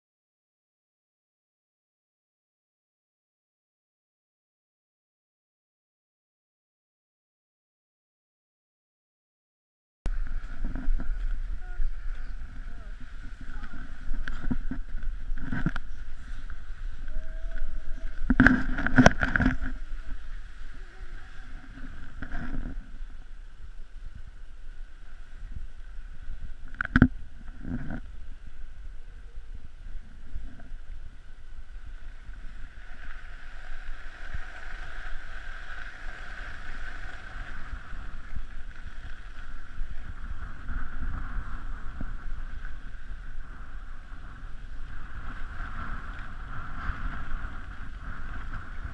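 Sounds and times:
skis scraping over snow: 10.1s - 26.6s, 30.0s - 48.9s
wind on the microphone: 10.1s - 48.9s.

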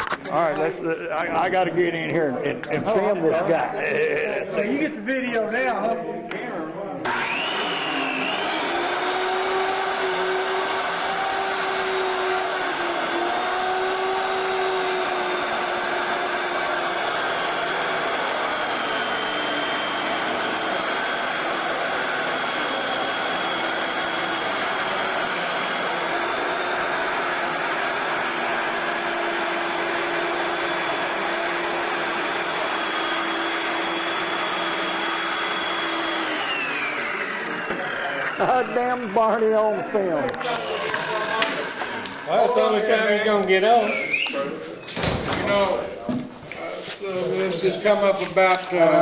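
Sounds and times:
circular saw cutting plywood: 7.0s - 44.2s.

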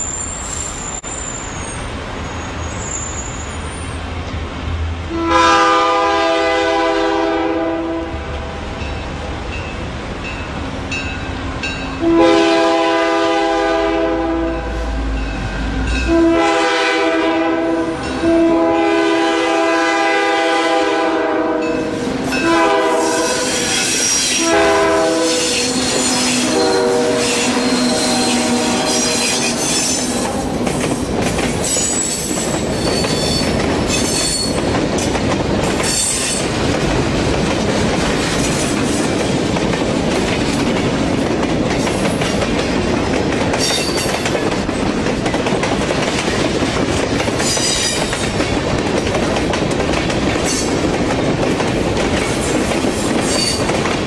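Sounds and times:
locomotive air horn blasts: 5.1s - 8.3s, 12.0s - 15.0s, 16.0s - 30.2s
train wheels clacking on rails: 19.6s - 54.0s.

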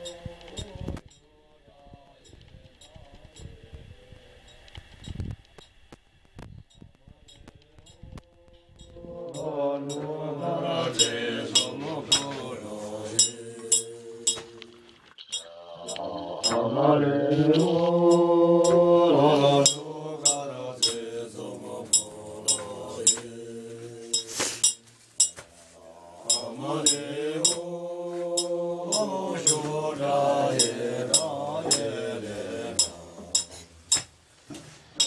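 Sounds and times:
voices chanting slow melody: 0.0s - 4.3s, 7.0s - 34.2s
clinks of cups and kettle: 11.0s - 12.4s, 13.2s - 14.5s, 19.7s - 21.0s, 22.0s - 23.2s, 24.2s - 25.4s, 26.3s - 27.6s, 32.8s - 34.1s.

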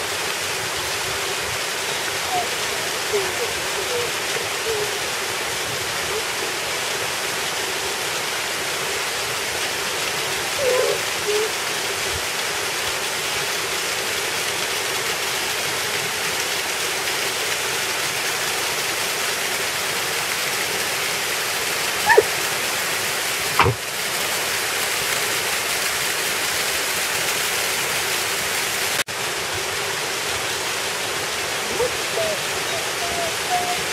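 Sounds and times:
small waterfall rushing: 0.0s - 33.9s
sharp knock: 23.6s - 23.8s.

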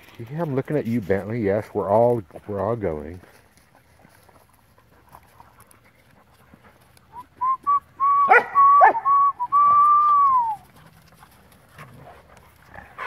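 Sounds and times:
person whistling: 7.1s - 10.6s
dogs yelping: 8.2s - 9.2s.

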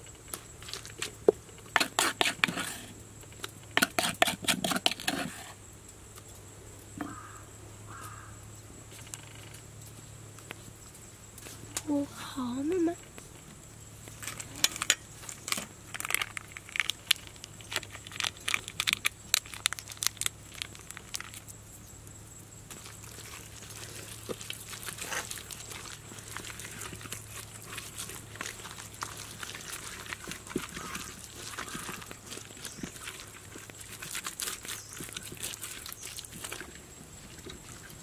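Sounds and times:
hands squelching wet paste on meat: 22.7s - 38.0s.

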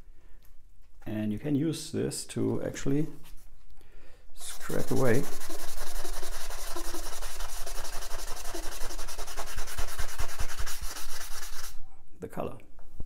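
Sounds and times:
sponge wet sanding plastic: 4.4s - 11.8s.

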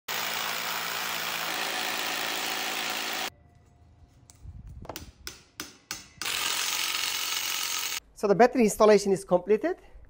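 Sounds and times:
rotary hammer drilling into concrete: 0.1s - 3.3s, 6.2s - 8.0s.

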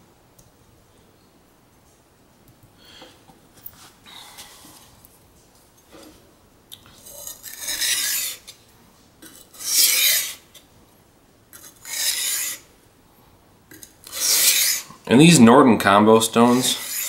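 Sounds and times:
knife scraping on whetstone: 7.0s - 8.6s, 9.2s - 10.6s, 11.5s - 12.7s, 13.7s - 15.0s, 16.3s - 17.0s.

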